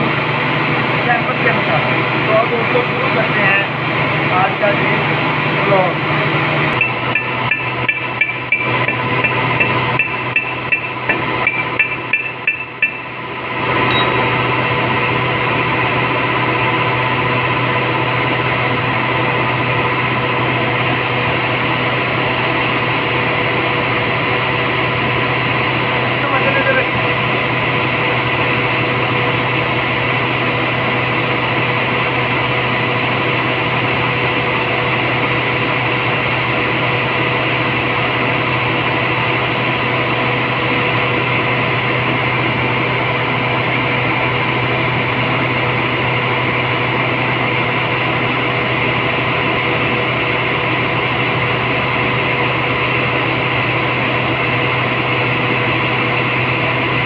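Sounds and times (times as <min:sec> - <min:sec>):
machinery droning: 0:00.0 - 0:57.0.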